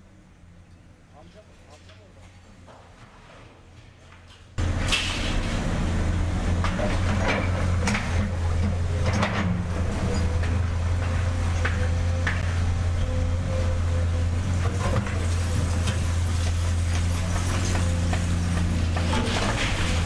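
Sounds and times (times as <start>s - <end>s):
heavy machinery engine droning: 4.6s - 20.0s.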